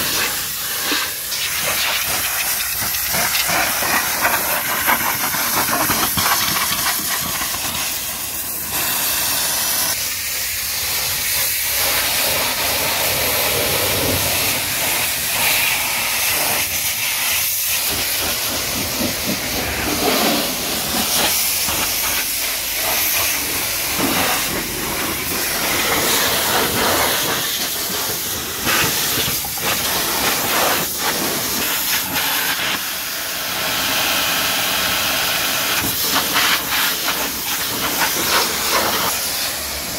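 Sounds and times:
pressure washer spraying water: 0.0 - 39.9.

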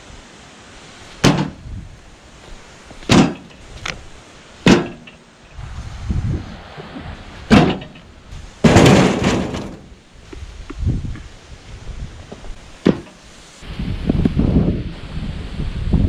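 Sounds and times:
clattering thump: 1.2 - 1.6, 3.1 - 3.6, 4.7 - 5.2, 7.5 - 9.9, 12.8 - 13.2
wood knocking on wood and metal: 1.2 - 1.6, 3.0 - 3.9, 4.6 - 5.2, 7.5 - 11.2, 12.3 - 13.2.

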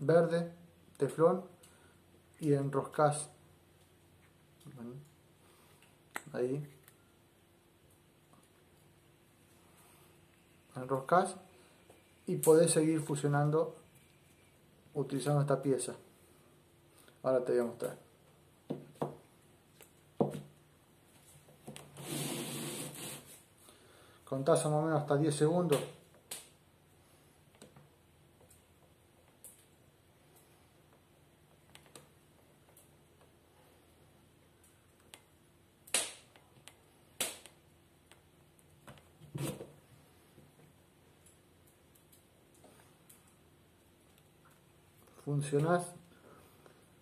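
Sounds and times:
faint steady hum: 0.0 - 47.0
machine scraping across table: 22.0 - 23.4.

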